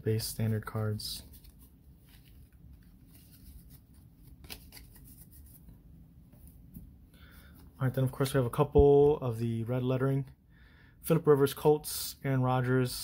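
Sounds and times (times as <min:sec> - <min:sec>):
trading cards sliding and rubbing: 0:00.5 - 0:06.8.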